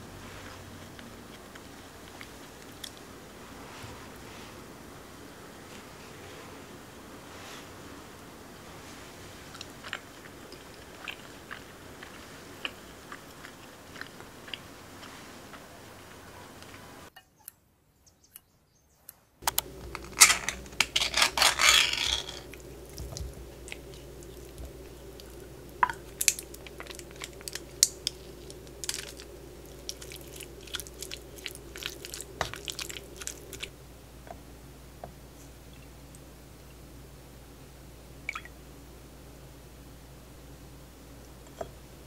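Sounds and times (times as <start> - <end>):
spatula stirring wet food: 22.4 - 33.7.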